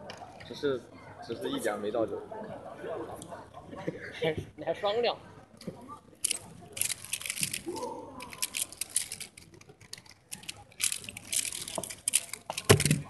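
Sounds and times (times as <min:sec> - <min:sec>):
puzzle cube clicking: 0:06.2 - 0:13.0.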